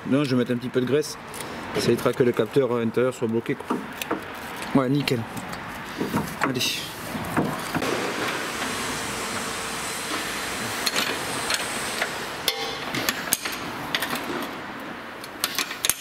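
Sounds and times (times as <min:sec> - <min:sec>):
steady hiss: 0:07.8 - 0:13.8
spanner clinking on metal nut: 0:15.3 - 0:16.0.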